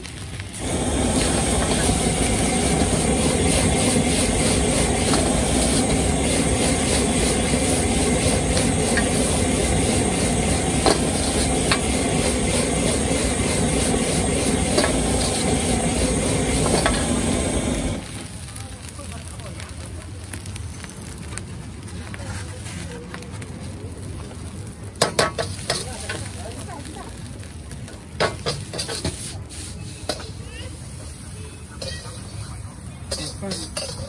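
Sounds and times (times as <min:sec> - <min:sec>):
gas burner roaring: 0:00.0 - 0:34.0
metal ladle scraping wok: 0:01.2 - 0:18.0, 0:28.3 - 0:30.4, 0:33.1 - 0:34.0.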